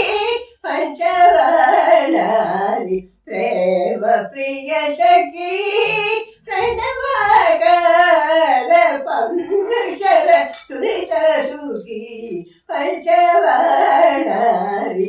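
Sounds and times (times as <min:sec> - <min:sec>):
woman singing unaccompanied: 0:00.0 - 0:15.0
singer breathing: 0:12.4 - 0:12.7.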